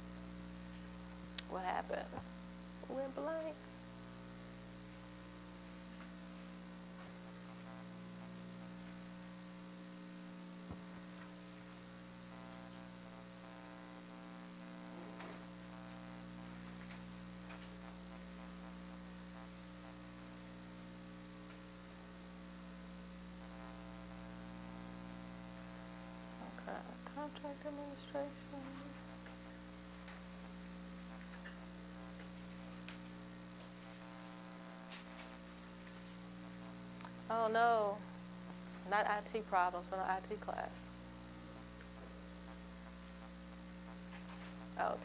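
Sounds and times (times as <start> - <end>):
faint electrical mains hum: 0.0 - 45.0.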